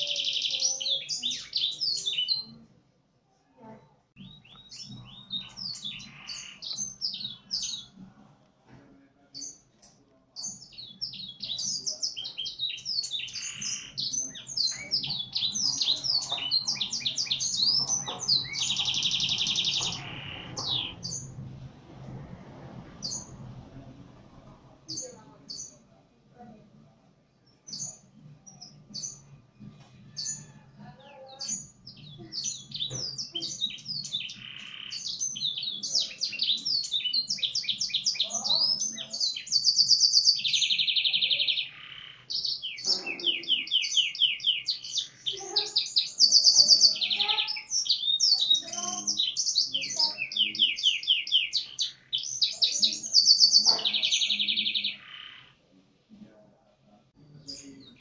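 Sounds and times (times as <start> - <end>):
canary singing trills: 0.0 - 2.7, 4.2 - 8.0, 10.3 - 21.4, 27.5 - 55.6.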